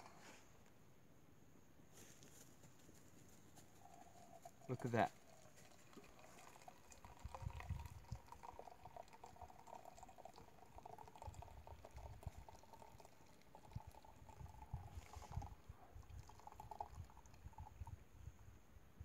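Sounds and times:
coffee pouring into filter: 3.6 - 18.0.

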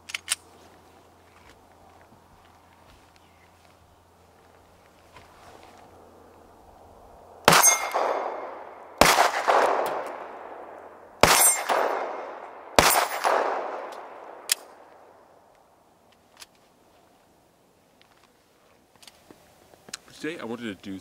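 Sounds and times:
handgun shots: 7.5 - 10.4, 11.2 - 14.7.

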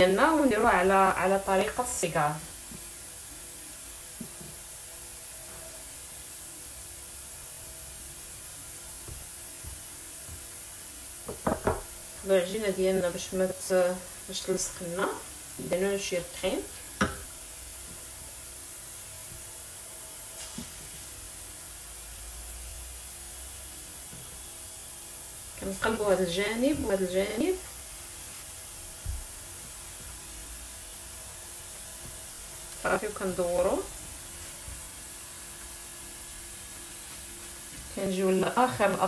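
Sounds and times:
high background hiss: 0.0 - 39.0
soft knocks on countertop: 11.3 - 11.9.

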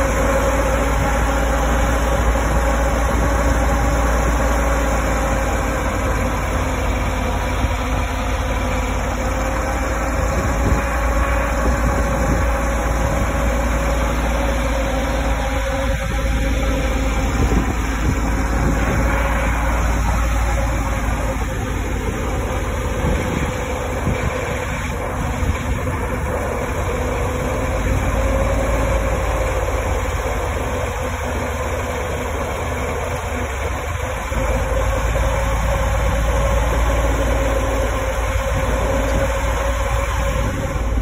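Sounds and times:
truck engine idling: 0.0 - 41.0.

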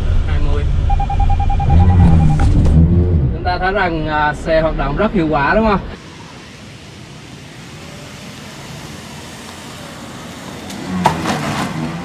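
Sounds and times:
light rain: 5.9 - 12.0
car rolling on wet road: 6.0 - 12.0.

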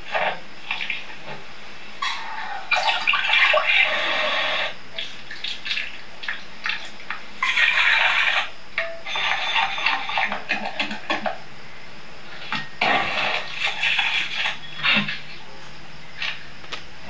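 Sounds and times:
utensils scraping in cooking pot: 7.4 - 10.4.

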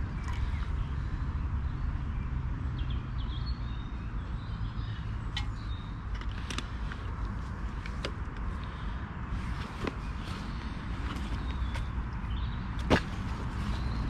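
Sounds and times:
bird chirping: 0.0 - 6.8
distant road traffic rumble: 0.0 - 14.0.

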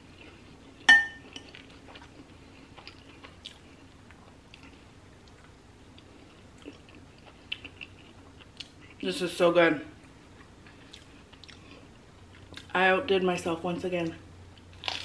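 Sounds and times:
spoon clinking on ceramic bowl: 0.9 - 1.4.

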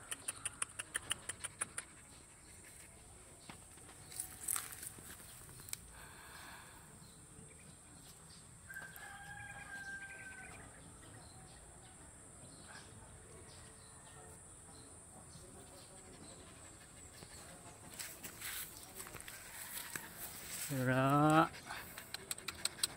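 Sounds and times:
rooster crowing: 8.7 - 10.6.

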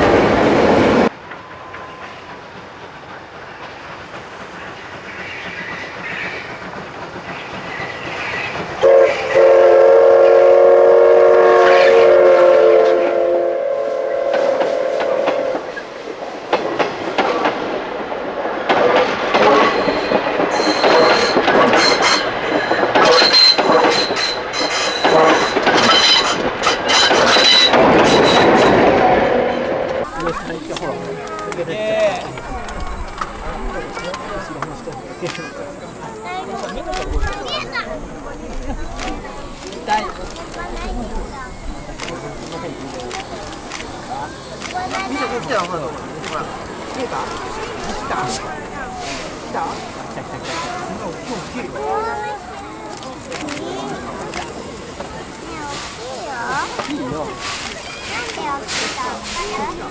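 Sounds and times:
train wheels clattering: 0.0 - 13.1, 14.1 - 59.9
steam locomotive approaching: 0.0 - 59.9
steam whistle blast: 8.8 - 15.6.

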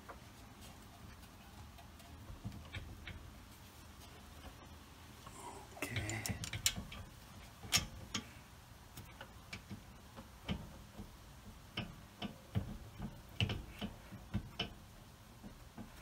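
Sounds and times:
metallic clicks and taps: 5.9 - 8.4.

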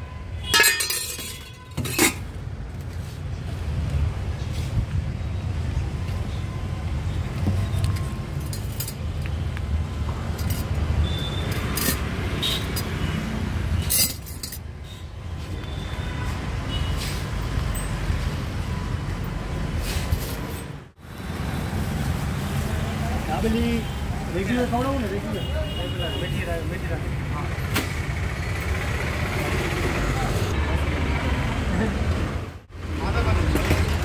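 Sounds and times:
street traffic rumble: 0.0 - 34.0
spoons clinking on steel containers: 0.5 - 2.2.

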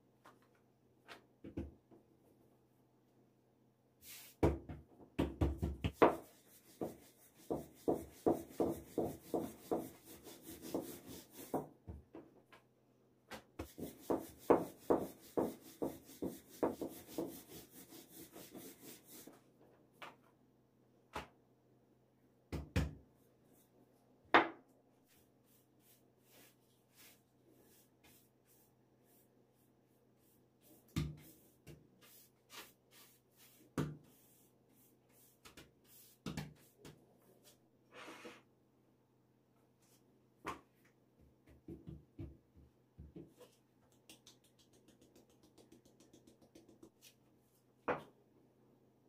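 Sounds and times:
rolling pin rolling over dough: 5.6 - 11.7, 13.6 - 19.3.

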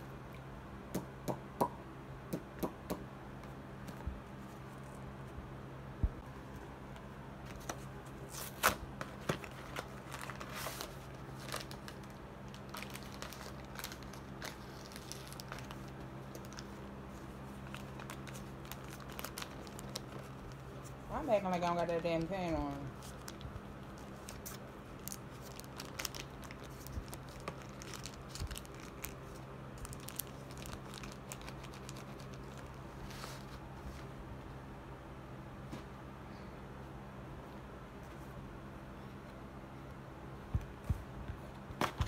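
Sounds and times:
paper liner crinkling: 7.5 - 21.0, 22.6 - 33.6.

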